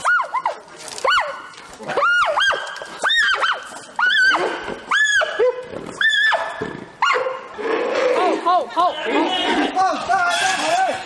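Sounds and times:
giant panda squealing: 0:07.7 - 0:11.0.

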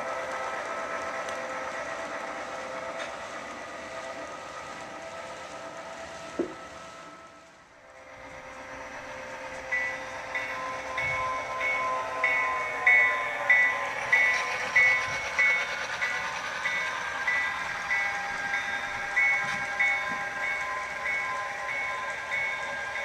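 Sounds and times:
locomotive bell ringing: 0:08.0 - 0:23.0.

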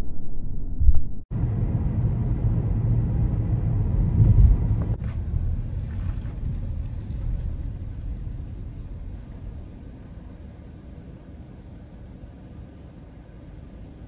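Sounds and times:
car road and engine rumble: 0:01.3 - 0:14.0
wind on microphone: 0:01.4 - 0:10.1.

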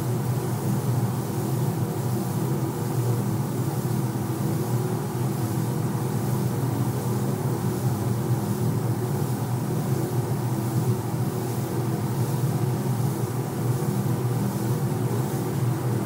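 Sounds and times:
spray gun air hiss: 0:11.4 - 0:16.0.

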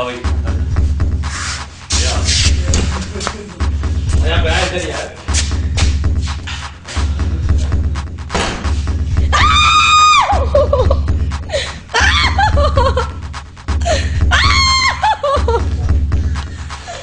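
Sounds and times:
wavering cries: 0:09.3 - 0:10.8, 0:11.9 - 0:12.9, 0:14.3 - 0:15.6
woman screaming: 0:09.3 - 0:10.8, 0:12.0 - 0:12.6, 0:14.3 - 0:15.5.

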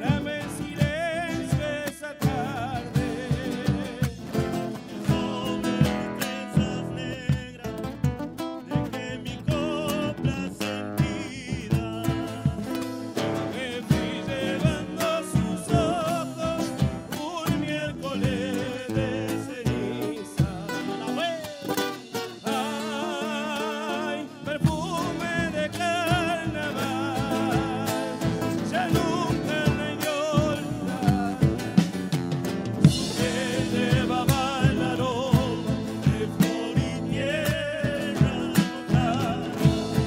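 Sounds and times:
men singing with vibrato: 0:00.0 - 0:40.0
strummed acoustic guitars: 0:00.0 - 0:40.0
drum and cymbal strokes: 0:20.4 - 0:23.4, 0:29.8 - 0:40.0.

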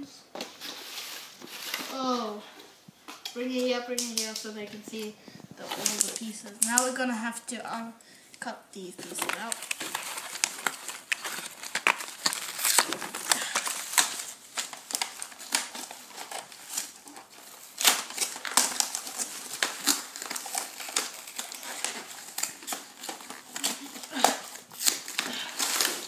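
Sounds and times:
cardboard rustling: 0:00.3 - 0:02.5, 0:05.6 - 0:07.0, 0:08.8 - 0:26.0.

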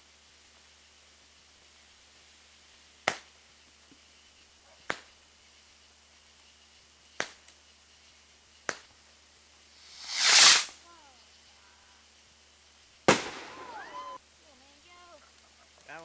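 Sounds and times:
fireworks popping: 0:01.1 - 0:09.0, 0:09.7 - 0:10.8, 0:13.0 - 0:14.2.

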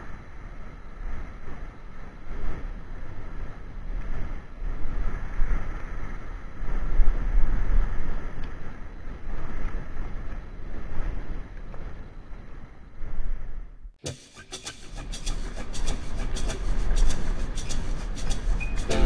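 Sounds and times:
wind buffeting microphone: 0:00.0 - 0:13.8.

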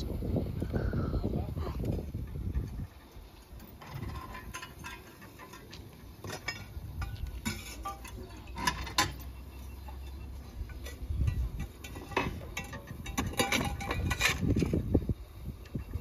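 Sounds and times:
metallic clinks and clanks: 0:02.2 - 0:14.8.

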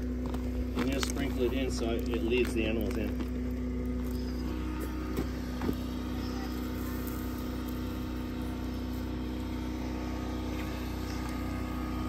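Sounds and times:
motor humming: 0:00.0 - 0:12.0.

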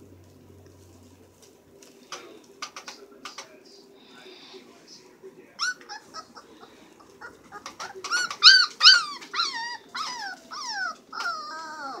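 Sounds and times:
puppies yelping and whining: 0:05.6 - 0:12.0.

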